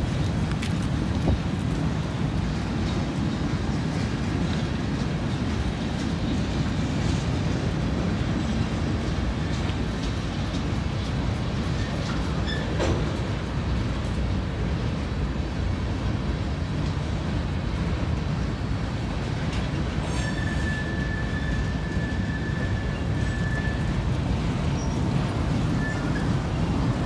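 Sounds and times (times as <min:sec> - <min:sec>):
freight train rolling rumble: 0:00.0 - 0:27.0
high wheel squeal: 0:20.0 - 0:24.1, 0:25.7 - 0:26.6.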